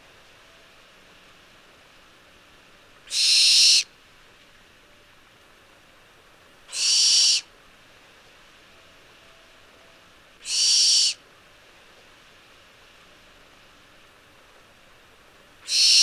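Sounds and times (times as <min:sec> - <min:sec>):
barn owl screeching: 0:03.1 - 0:03.9, 0:06.7 - 0:07.5, 0:10.4 - 0:11.2, 0:15.6 - 0:16.0.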